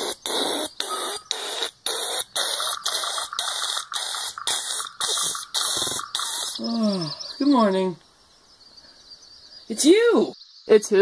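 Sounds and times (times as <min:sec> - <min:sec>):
pulsing harsh hissing: 0:00.0 - 0:07.2.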